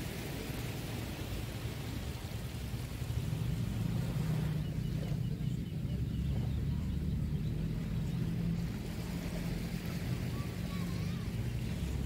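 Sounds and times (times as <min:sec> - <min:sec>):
motorboat engine humming: 0:00.0 - 0:12.0
small waves washing on sand: 0:00.0 - 0:12.0.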